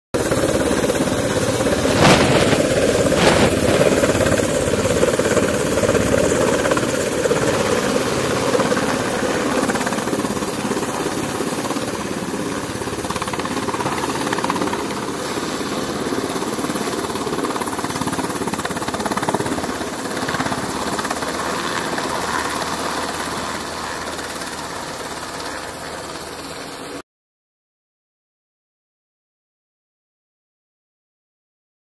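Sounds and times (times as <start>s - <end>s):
helicopter flying: 0.2s - 27.0s
short bursts of noise: 1.8s - 4.0s.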